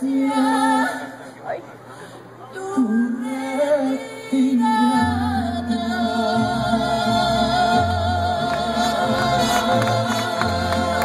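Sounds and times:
mariachi band playing: 5.7 - 11.0.

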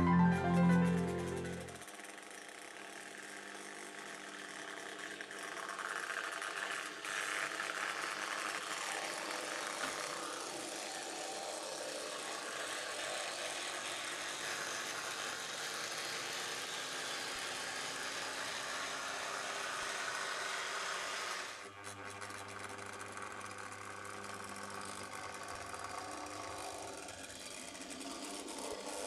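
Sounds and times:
model tram motor whirring: 0.0 - 29.0.

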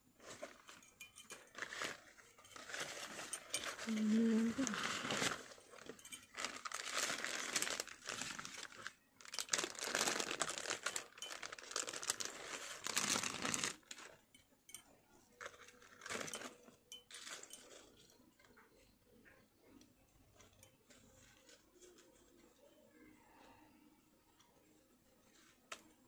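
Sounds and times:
paper and plastic wrapping crinkling: 0.2 - 14.2, 15.4 - 18.6.

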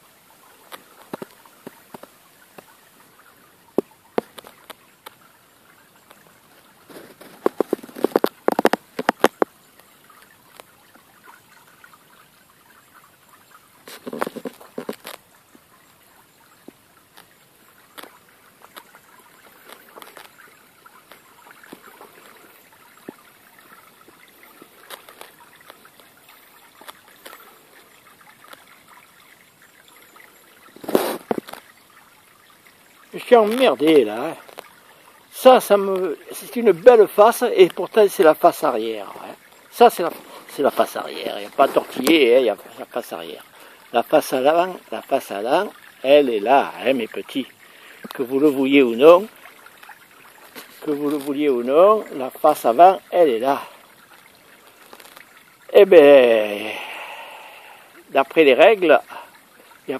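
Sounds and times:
fountain trickling and splashing: 0.0 - 59.9
clicks and rustles: 3.7 - 5.2, 6.0 - 9.6, 13.8 - 15.3, 16.7 - 27.5, 30.7 - 31.8, 54.1 - 55.4.

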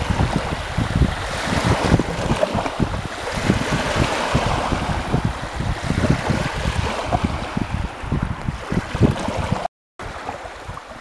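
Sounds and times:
small waves breaking on shore: 0.0 - 11.0
wind buffeting microphone: 0.0 - 11.0.

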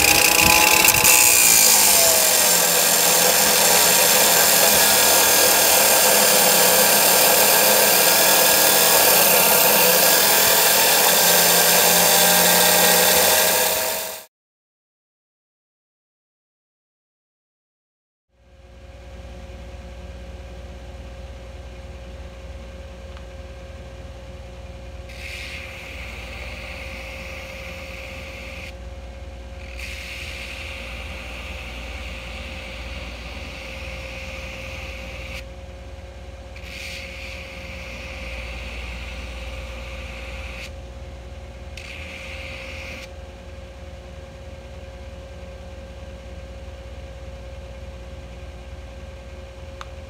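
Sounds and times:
belt grinder running: 0.0 - 14.3, 25.1 - 28.7, 29.6 - 35.4, 36.6 - 40.7, 41.8 - 43.1
steel grinding on belt: 0.0 - 14.3.

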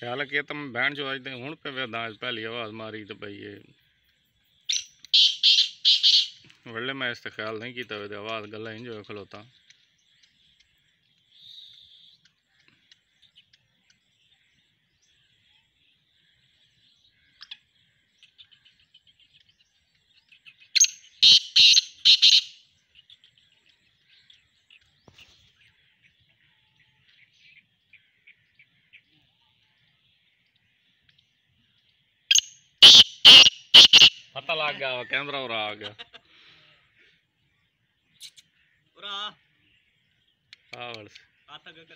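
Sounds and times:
francolin calling: 0.0 - 18.8, 20.5 - 23.2, 32.3 - 35.8
faint chirps and ticks: 0.0 - 33.0, 33.7 - 41.9.

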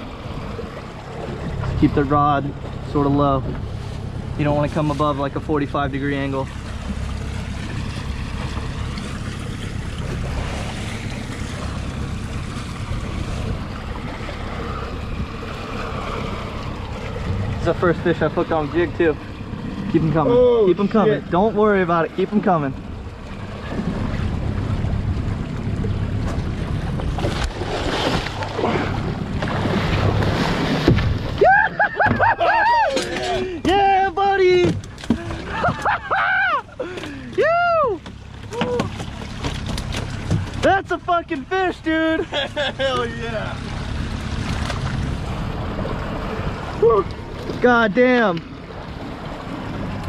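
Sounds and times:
wind rumble on microphone: 0.0 - 20.5
boat motor running: 0.0 - 50.0
water sloshing against hull: 0.0 - 50.0
fish thrashing and splashing: 6.4 - 20.2, 22.8 - 40.7, 43.6 - 47.7.

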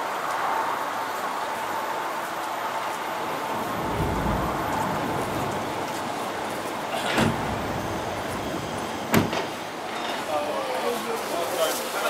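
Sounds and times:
engine rumble: 2.7 - 10.6.

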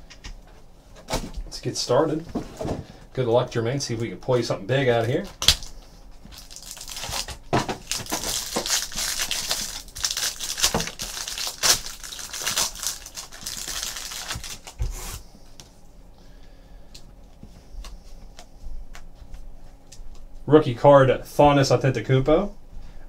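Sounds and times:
foil wrapper tearing and crinkling: 5.4 - 15.2.

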